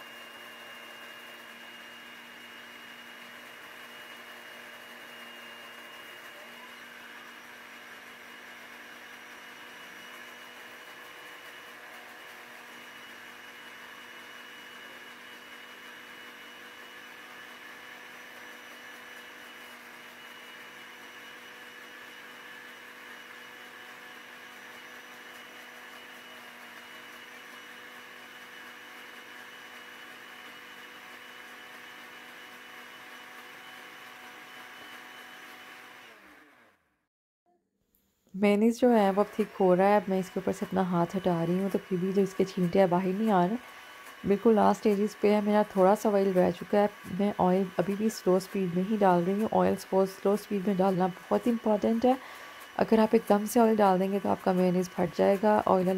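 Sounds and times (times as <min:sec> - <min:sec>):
blender motor whirring: 0:00.0 - 0:36.9, 0:38.6 - 0:55.9.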